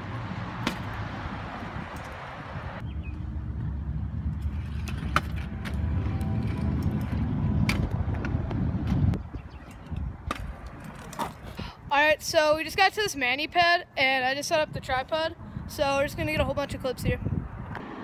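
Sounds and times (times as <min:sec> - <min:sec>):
scooter wheels rolling on asphalt: 0:00.0 - 0:11.7.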